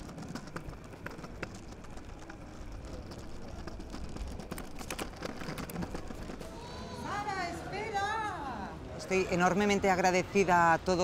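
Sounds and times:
wheel clicks over joints: 0.0 - 7.1
scooter wheels rumbling on paving: 0.0 - 11.0.

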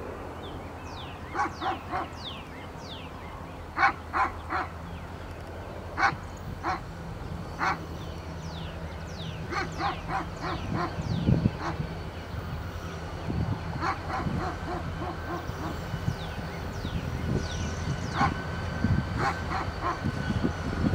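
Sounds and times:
diesel locomotives humming: 0.0 - 20.9
dog barking: 1.3 - 2.2, 3.8 - 4.7, 6.0 - 6.8, 7.6 - 7.8, 9.5 - 10.9, 13.8 - 15.7, 18.2 - 18.4, 19.2 - 20.0.

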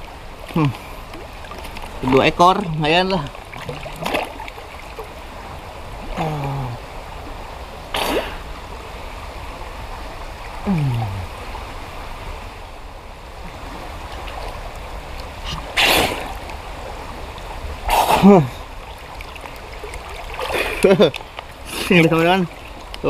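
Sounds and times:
river water running: 0.0 - 23.0
man grunting: 6.2 - 6.8, 10.7 - 11.3.

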